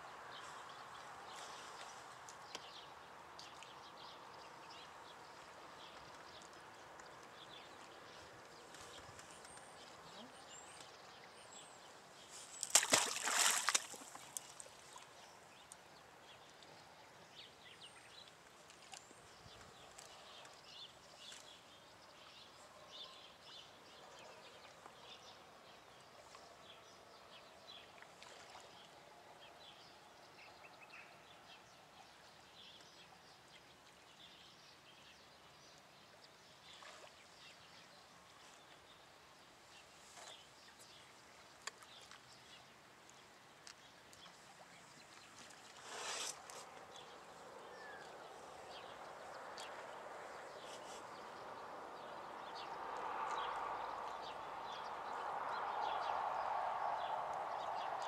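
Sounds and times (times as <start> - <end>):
small chirps and ticks: 1.9 - 11.4, 40.0 - 45.6
fish splashing into water: 12.6 - 14.7.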